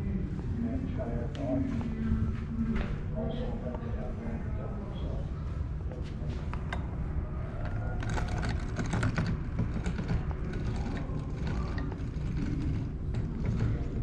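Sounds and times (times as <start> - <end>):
model valve gear clicking and rattling: 8.0 - 14.0.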